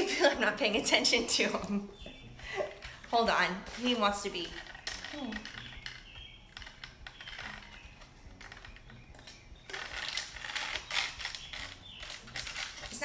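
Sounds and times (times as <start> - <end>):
small objects clicking and tapping: 4.2 - 13.0.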